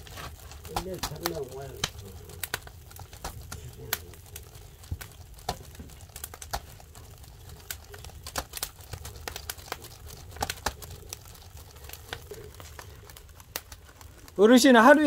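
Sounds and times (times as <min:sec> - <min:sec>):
fish crackling over wood fire: 0:00.0 - 0:15.0.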